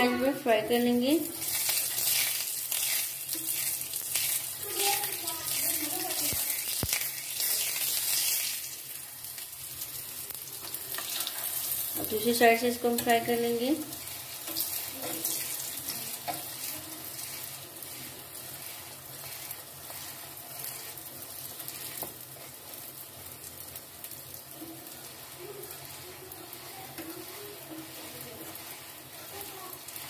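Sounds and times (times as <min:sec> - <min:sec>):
flatbread sizzling in fat: 0:00.0 - 0:30.0
spatula pressing bread: 0:14.3 - 0:22.6.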